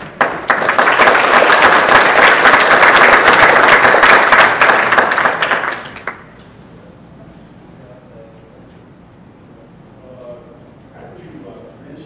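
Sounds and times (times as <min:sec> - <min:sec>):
audience clapping: 0:00.0 - 0:06.4.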